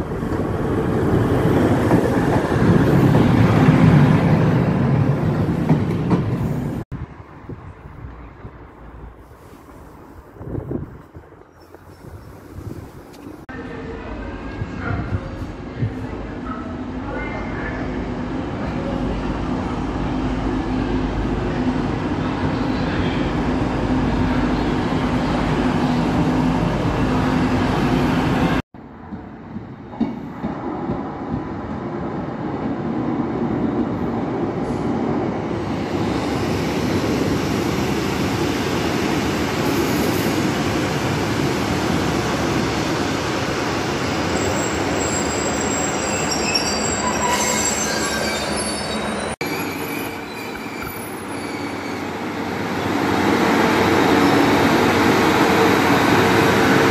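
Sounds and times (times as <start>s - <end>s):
diesel train rumbling past: 0.0s - 56.9s
train engine hum: 0.0s - 56.9s
train wheels squealing on rails: 43.4s - 52.9s.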